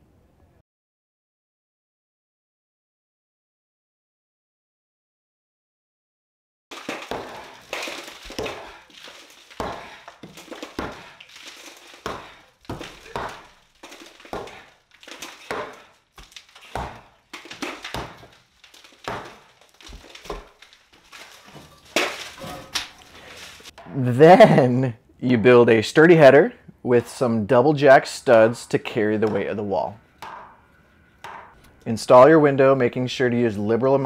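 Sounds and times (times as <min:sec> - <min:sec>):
concrete crunching and scraping: 0:06.7 - 0:23.8.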